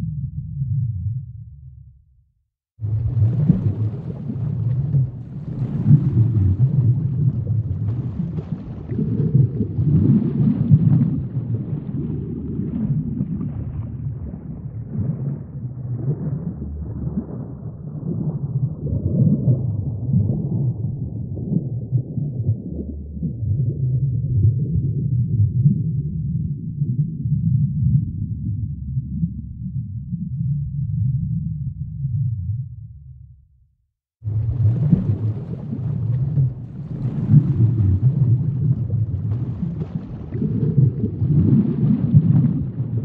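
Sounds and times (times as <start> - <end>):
deep low rumbling drone: 12.2 - 33.6.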